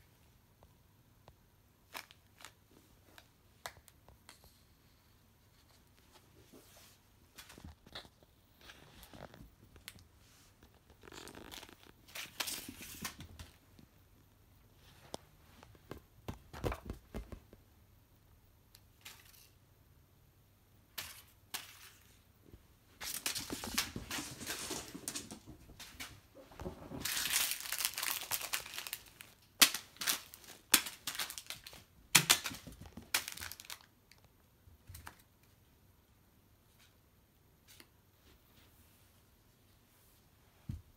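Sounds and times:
plastic packet crinkling: 27.0 - 34.2.

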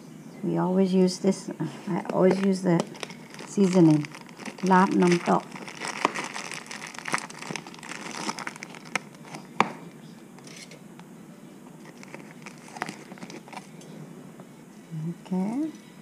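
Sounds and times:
package crinkling and rustling: 1.9 - 9.8, 11.8 - 13.8.

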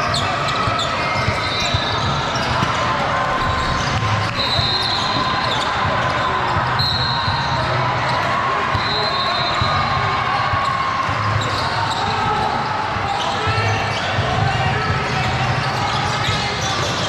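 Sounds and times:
shoe squeaks: 0.0 - 2.8, 10.6 - 14.2
spectators chattering: 0.0 - 17.0.

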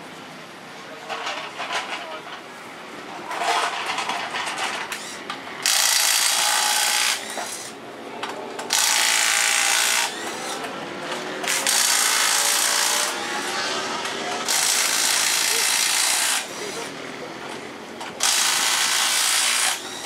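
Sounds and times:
pneumatic impact wrench: 3.4 - 7.8, 8.7 - 10.6, 11.2 - 16.9, 18.2 - 20.0.

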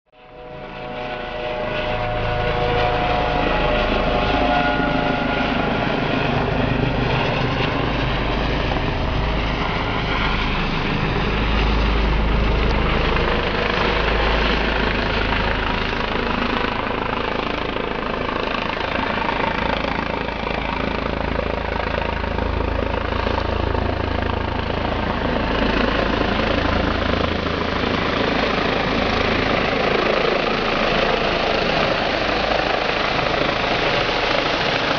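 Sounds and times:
helicopter rotor and turbine: 0.1 - 34.9.

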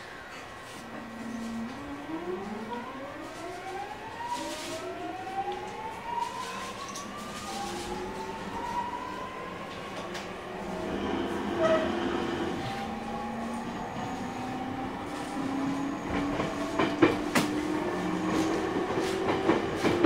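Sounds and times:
electric train motors whining: 5.4 - 20.0.

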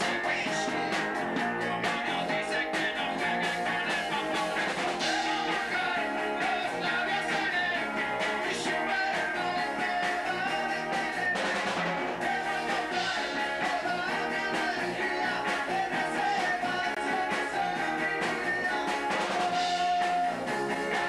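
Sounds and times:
rock band playing live: 0.0 - 21.0.

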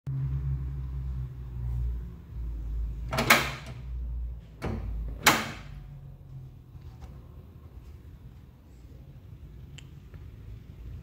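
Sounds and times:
door latch metallic clunks: 3.1 - 3.8, 4.6 - 5.8.

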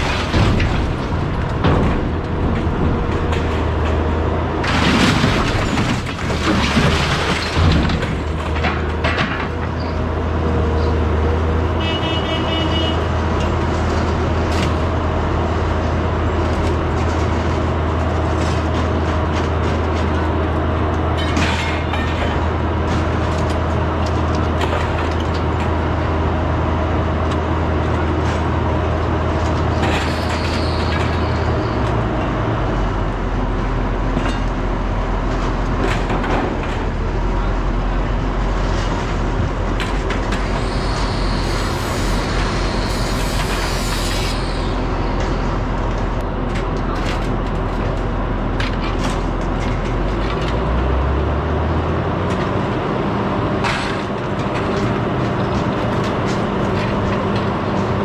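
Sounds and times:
knocks and clatters: 0.0 - 10.0, 21.0 - 25.8, 35.3 - 37.1, 53.6 - 58.0.

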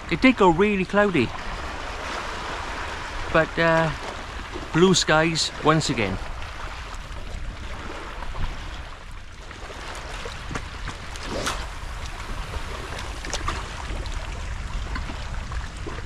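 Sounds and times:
water lapping: 0.0 - 16.0
wind buffeting microphone: 6.0 - 16.0.

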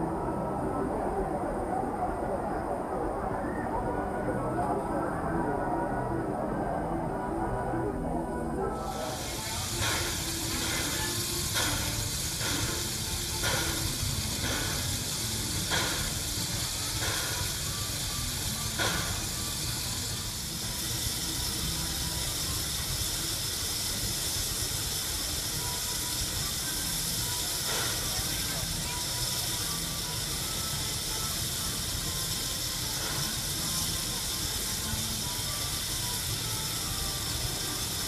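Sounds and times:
steam locomotive hissing: 8.7 - 38.0.

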